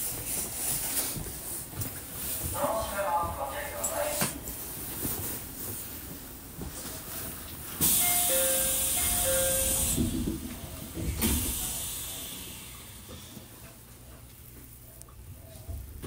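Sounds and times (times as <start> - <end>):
train low rumble: 0.0 - 16.0
train door air hiss: 7.8 - 13.7
two-note door chime: 7.9 - 10.0.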